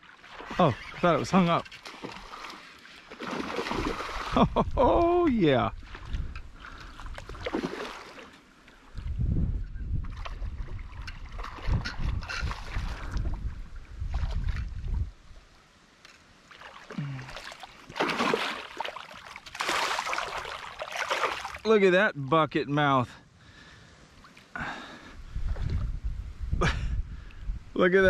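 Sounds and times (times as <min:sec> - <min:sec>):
fish splashing in water: 0:01.8 - 0:04.4, 0:07.2 - 0:08.3, 0:16.5 - 0:21.6
wind buffeting microphone: 0:03.7 - 0:07.7, 0:08.9 - 0:15.4, 0:25.2 - 0:28.0.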